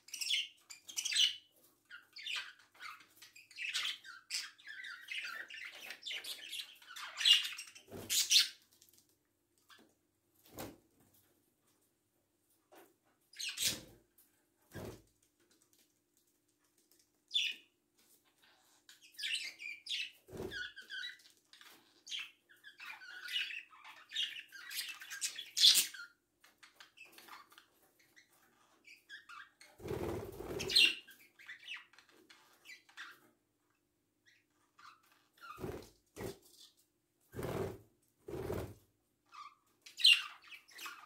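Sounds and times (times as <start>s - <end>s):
parrots chirping and chattering: 0.0s - 9.0s, 13.3s - 14.0s, 17.3s - 33.3s, 34.2s - 36.8s, 39.2s - 41.0s.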